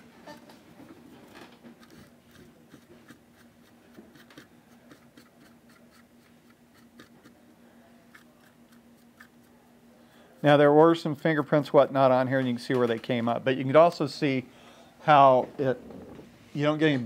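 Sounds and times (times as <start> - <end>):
steady low hum: 0.0 - 17.0
small brush scrubbing: 1.7 - 7.4.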